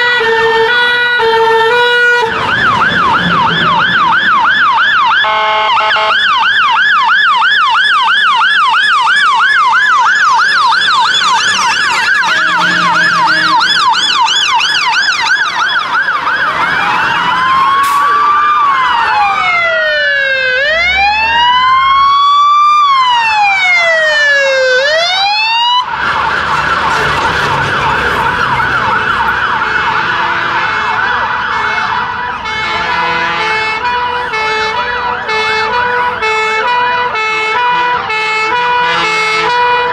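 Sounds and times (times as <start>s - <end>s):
fire engine sirens wailing: 0.0s - 39.9s
two-tone siren: 0.0s - 39.9s
siren fast warble: 2.1s - 30.1s.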